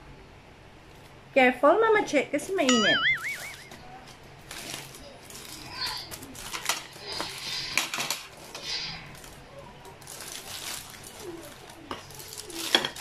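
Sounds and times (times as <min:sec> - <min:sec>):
aluminium foil crinkling and tearing: 0:04.4 - 0:13.0.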